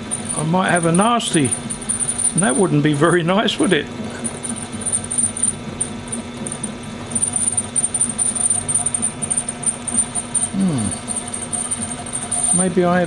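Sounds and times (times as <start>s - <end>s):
lathe motor hum with whine: 0.0s - 13.0s.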